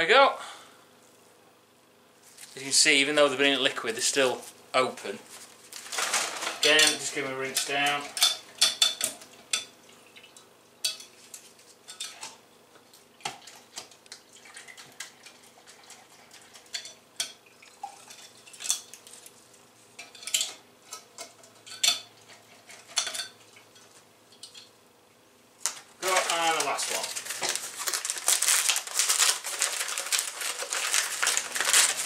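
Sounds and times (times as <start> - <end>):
tin cans and pine cone clinking: 5.8 - 9.7, 25.7 - 32.0.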